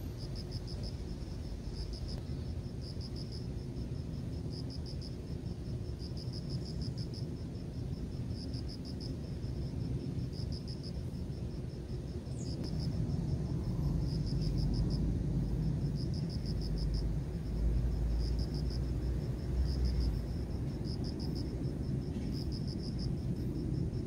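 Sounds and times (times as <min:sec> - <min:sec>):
insect chirping in rapid pulses: 0:00.0 - 0:24.0
steady low rumble: 0:00.0 - 0:24.0.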